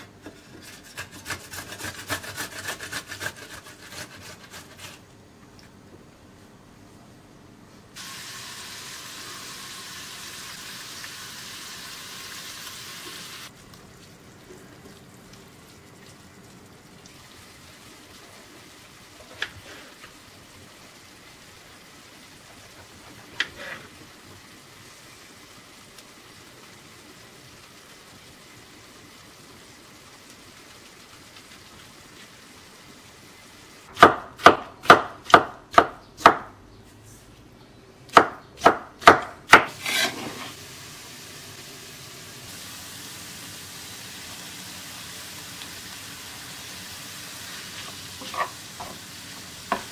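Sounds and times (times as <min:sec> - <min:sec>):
onions sizzling in frying pan: 0:08.0 - 0:13.6, 0:17.1 - 0:34.0, 0:39.5 - 0:49.9
knife chopping on wooden board: 0:34.0 - 0:36.5, 0:38.1 - 0:40.2.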